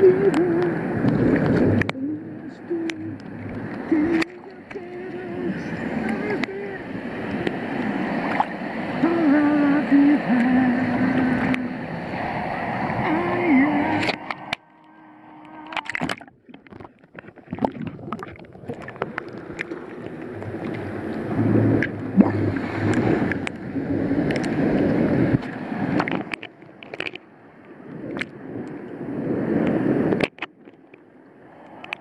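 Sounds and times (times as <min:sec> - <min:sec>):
small waves lapping: 0:00.0 - 0:32.0
water clicks on camera housing: 0:01.4 - 0:02.0, 0:15.6 - 0:19.7, 0:25.4 - 0:27.2, 0:30.1 - 0:31.0.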